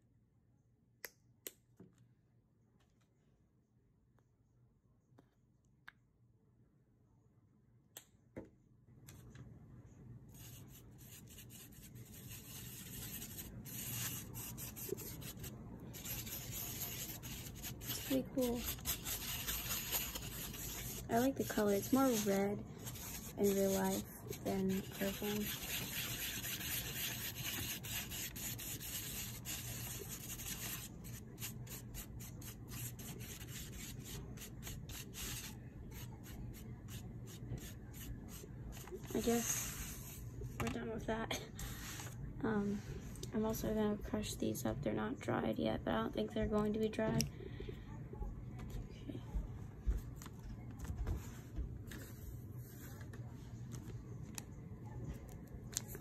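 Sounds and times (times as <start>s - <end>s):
paintbrush scratchy rubbing: 10.4s - 40.2s.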